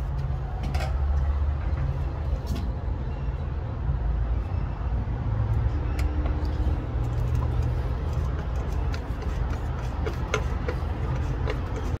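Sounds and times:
screwdriver clicking and scraping: 6.0 - 12.0.

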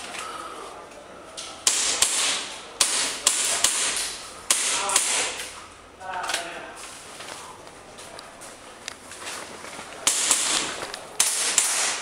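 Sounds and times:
airsoft pistol shots: 1.6 - 5.4, 10.0 - 12.0.

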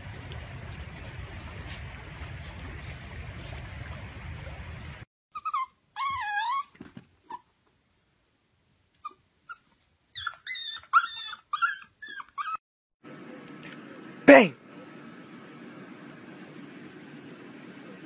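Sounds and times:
dog whining: 5.3 - 7.5, 9.0 - 12.6.

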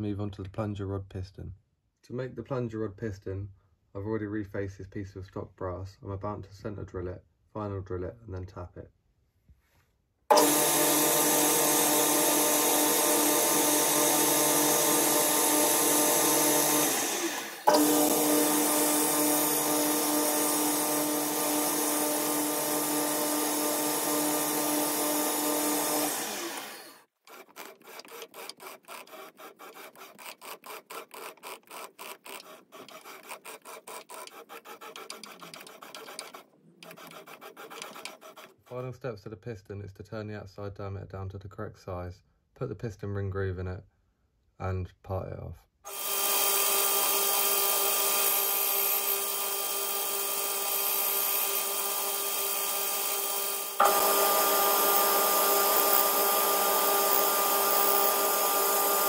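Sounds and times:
lathe drilling brass: 10.3 - 38.5, 45.9 - 59.0.

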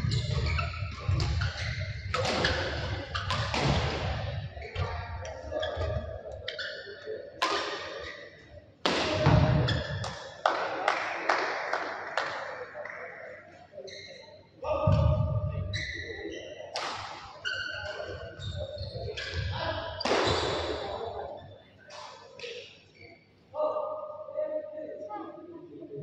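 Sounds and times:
racket hitting shuttlecock: 0.4 - 4.1, 7.4 - 8.1.

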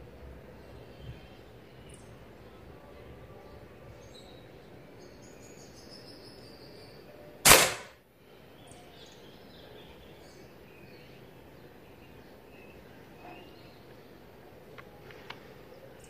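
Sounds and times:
air rifle shot crack: 7.4 - 8.0.

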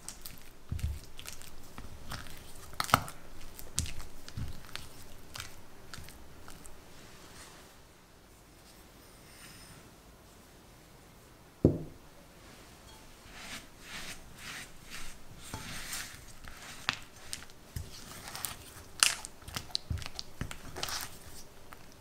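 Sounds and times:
spatula scraping in glass bowl: 12.9 - 21.8.

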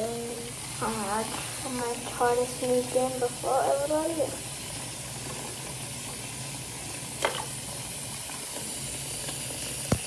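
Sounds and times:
tap running into basin: 7.1 - 10.0.

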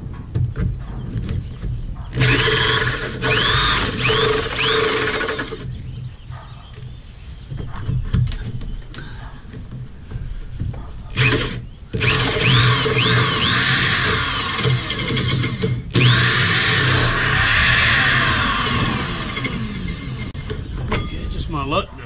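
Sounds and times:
drill hole saw cutting: 2.2 - 5.6, 11.2 - 20.4
high chirps of saw cutting: 2.2 - 5.7, 11.2 - 20.5.

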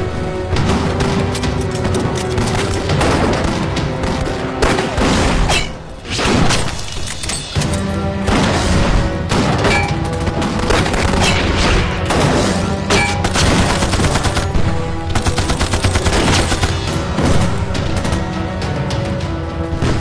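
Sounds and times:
background music: 0.0 - 20.0
rapid dense gunfire: 0.4 - 5.5, 8.2 - 18.5.

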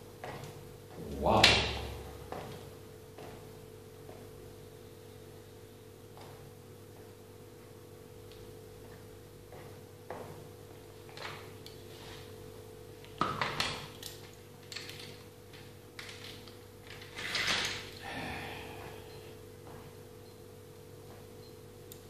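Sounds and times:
steady low hum: 0.0 - 13.2, 17.8 - 22.0.

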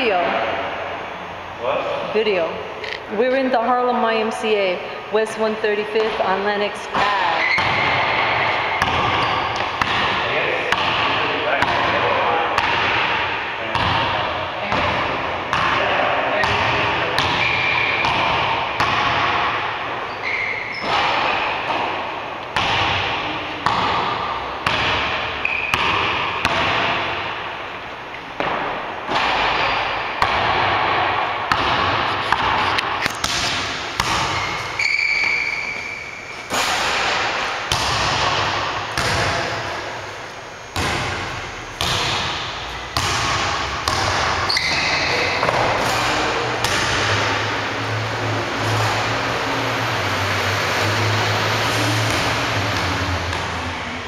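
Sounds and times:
sneakers squeaking: 5.8 - 54.0
basketball bouncing on wooden floor: 7.0 - 12.0, 12.6 - 15.8, 16.4 - 19.6, 22.6 - 27.1, 28.4 - 35.8, 36.6 - 39.7, 40.8 - 46.0.

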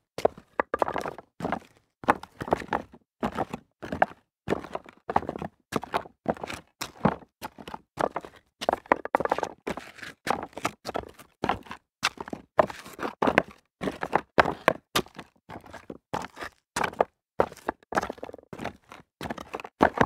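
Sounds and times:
footsteps on loose rock: 0.2 - 2.7.

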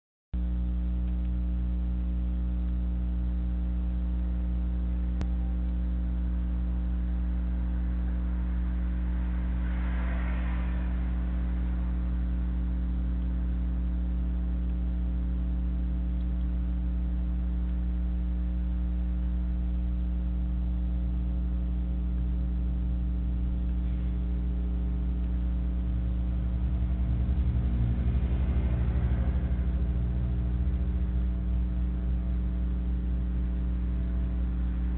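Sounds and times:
electrical hum with tones: 0.4 - 34.9
hissy swells: 7.7 - 13.0.

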